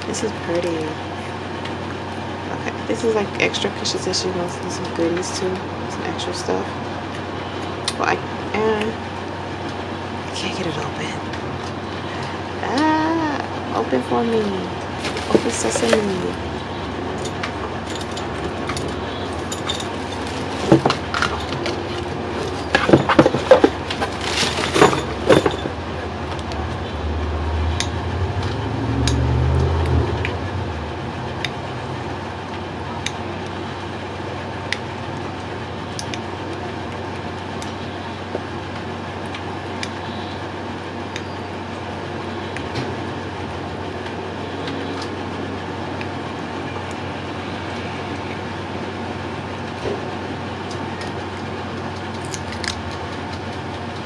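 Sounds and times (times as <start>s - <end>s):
low rumble: 13.2s - 33.6s
tissue paper crinkling: 14.9s - 16.4s, 23.4s - 25.2s.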